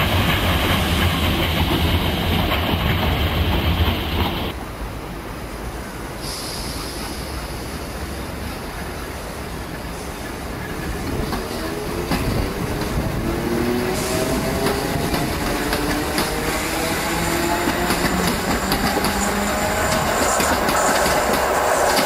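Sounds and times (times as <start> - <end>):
wheels clicking over rail joints: 14.4 - 22.0.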